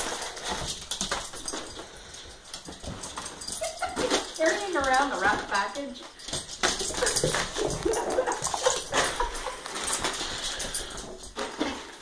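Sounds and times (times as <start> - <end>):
clattering on wooden floor: 0.0 - 12.0
gift wrap crackling: 2.9 - 12.0.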